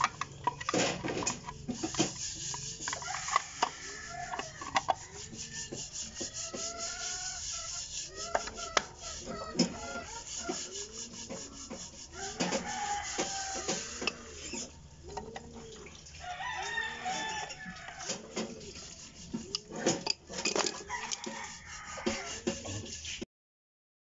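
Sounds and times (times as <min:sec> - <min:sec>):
plastic cover scraping and clicking: 0:00.0 - 0:05.1, 0:11.2 - 0:15.5, 0:16.5 - 0:21.4
chickens clucking: 0:00.0 - 0:23.2.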